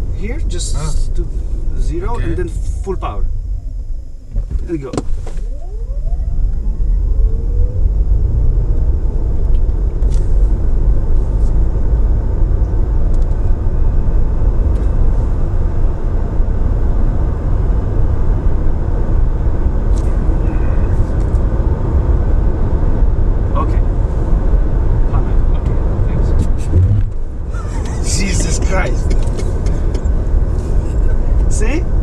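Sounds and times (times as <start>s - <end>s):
electric drive whine: 0.0s - 17.8s
tyre and road rumble: 3.3s - 32.0s.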